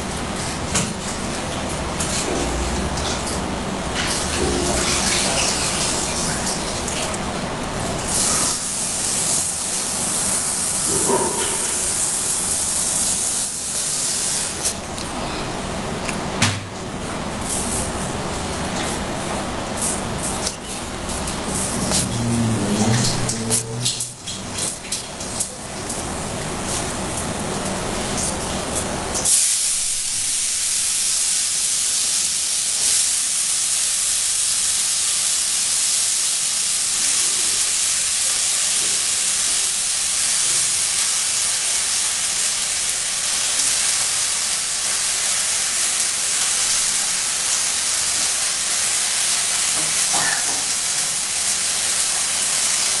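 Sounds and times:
loud steady hiss: 8.0 - 14.8, 29.2 - 53.0.

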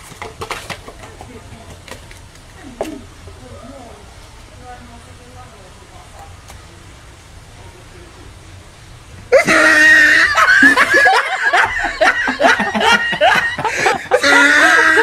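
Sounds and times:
shrill squealing cries: 9.3 - 10.6, 14.1 - 15.0
loud laughter: 9.3 - 15.0.

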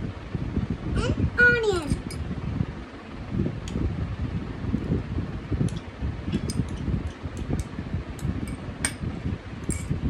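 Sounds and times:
low room rumble: 0.0 - 10.0
spoon clinking against bowl: 9.7 - 10.0.

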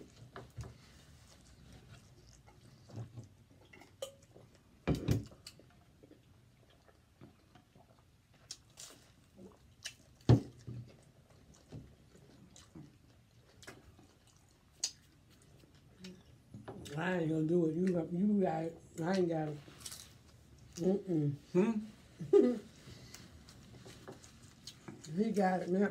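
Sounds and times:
chewing and biting: 1.3 - 16.4.

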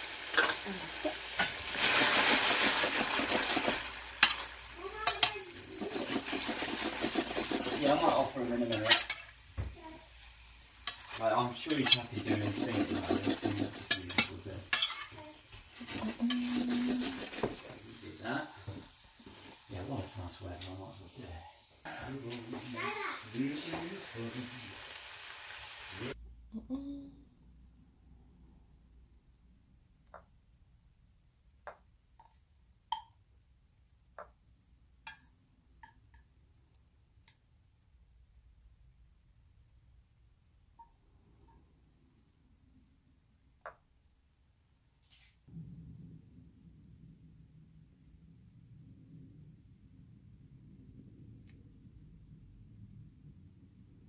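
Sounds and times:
meatballs sizzling in a pan: 0.0 - 26.2
metal spatula scraping a pan: 2.6 - 9.4, 10.8 - 18.1.

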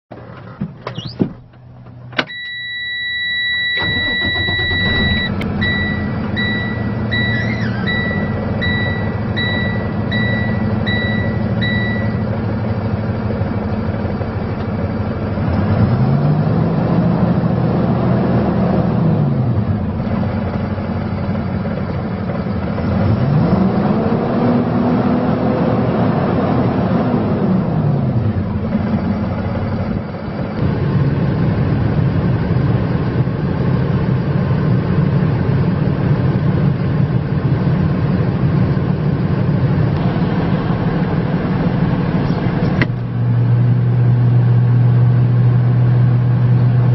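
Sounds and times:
diesel engine starting and revving: 0.1 - 46.9
short repeated beeps: 2.3 - 12.2.

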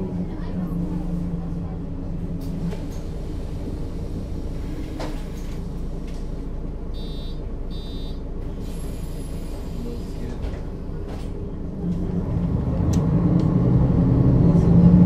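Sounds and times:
bus engine running: 0.0 - 15.0.

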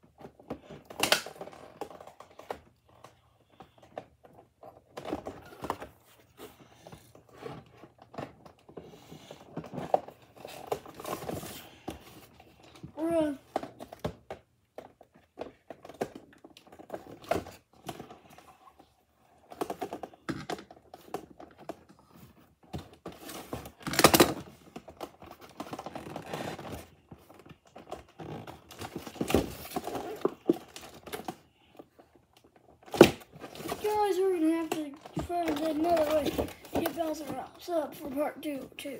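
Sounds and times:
cardboard and plastic rustling: 0.0 - 38.9.

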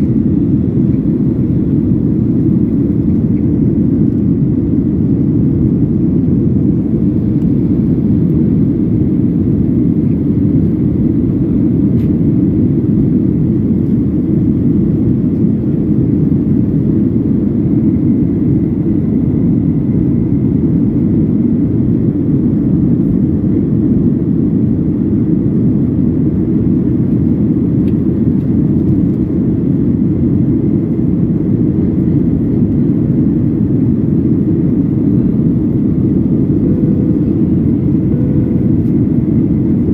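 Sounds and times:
jet airliner cabin roar: 0.0 - 39.9.

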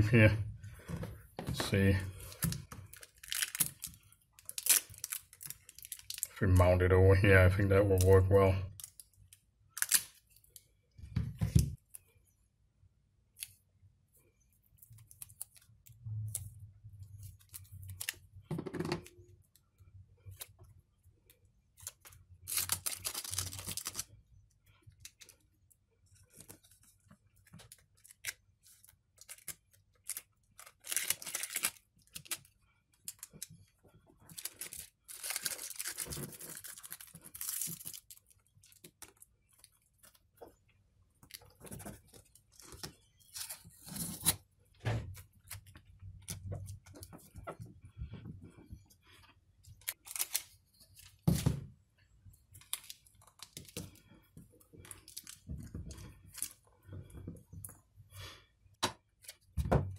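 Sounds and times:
tape being cut and peeled: 3.2 - 6.3, 9.8 - 10.2, 42.6 - 44.5.

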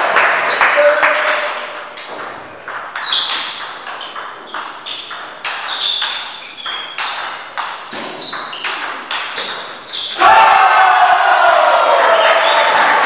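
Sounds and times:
table tennis ball bouncing: 0.6 - 10.2.

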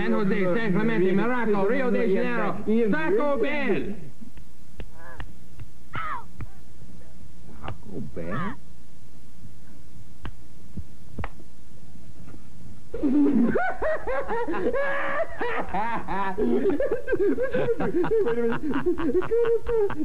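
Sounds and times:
low steady hum: 0.0 - 20.0
people laughing: 13.0 - 20.0.

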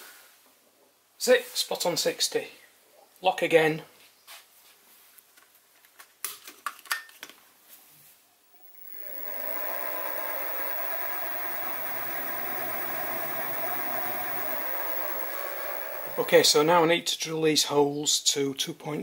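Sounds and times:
mill spindle motor running: 8.6 - 16.8.

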